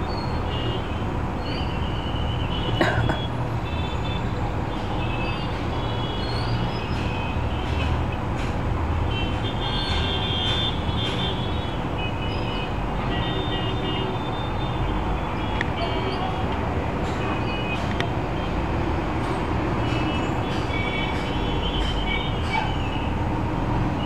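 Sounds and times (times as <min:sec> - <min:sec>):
heavy road traffic rumble: 0:00.0 - 0:24.0.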